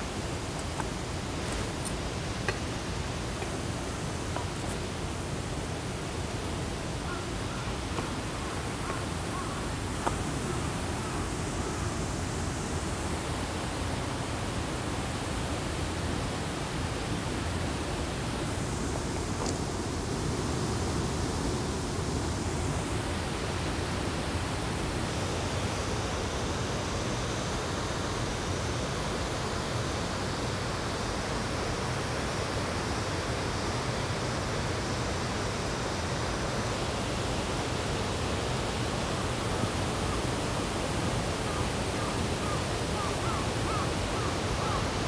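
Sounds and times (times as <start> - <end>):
mountain stream rushing: 0.0 - 45.0
thin high-pitched buzz: 25.0 - 37.1.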